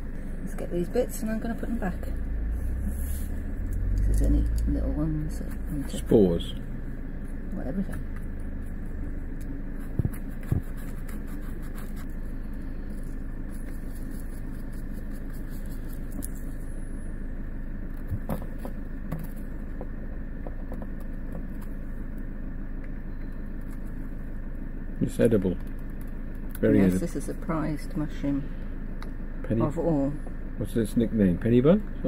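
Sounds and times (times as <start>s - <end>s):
low machine hum: 0.0s - 32.0s
knife and brush scraping mushroom: 9.7s - 16.8s.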